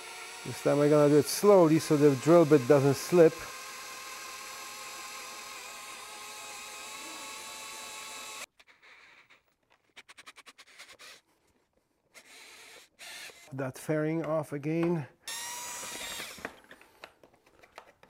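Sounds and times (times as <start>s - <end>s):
drill boring through plastic: 0.0s - 9.3s, 12.1s - 13.5s, 15.3s - 16.6s.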